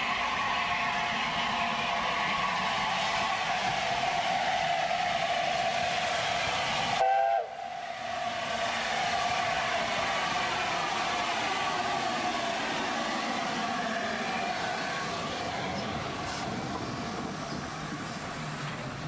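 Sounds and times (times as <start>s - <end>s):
steam hissing: 0.0s - 19.0s
steam locomotive chime whistle: 7.0s - 7.9s.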